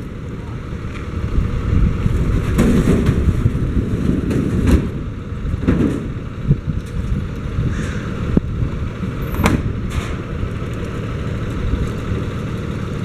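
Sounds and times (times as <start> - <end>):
truck engine idling: 0.0 - 13.0
plastic carts clattering on metal: 2.3 - 5.0.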